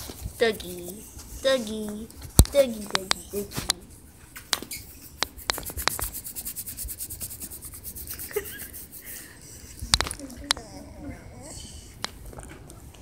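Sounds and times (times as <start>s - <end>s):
dog fur rubbing against phone: 2.6s - 9.1s
rasping scratches: 4.7s - 9.2s.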